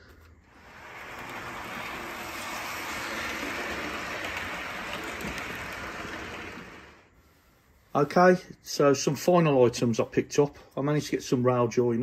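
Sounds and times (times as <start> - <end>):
model train rolling rumble: 0.4 - 7.2.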